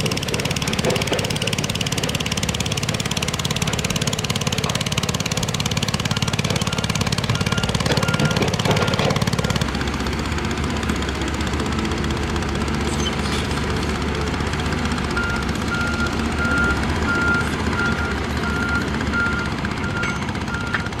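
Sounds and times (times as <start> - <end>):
diesel engine running: 0.0 - 21.0
reversing alarm beeping: 5.9 - 9.0, 15.2 - 21.0.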